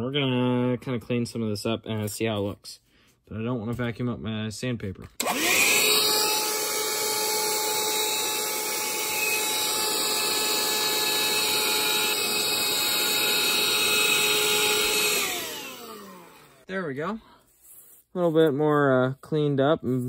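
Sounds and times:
vacuum cleaner whining: 5.2s - 16.7s.

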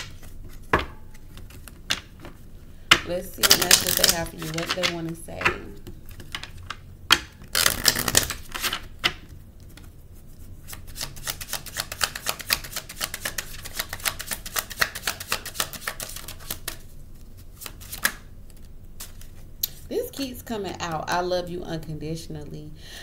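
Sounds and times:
cards riffle shuffled: 3.4s - 9.9s, 10.6s - 19.4s.

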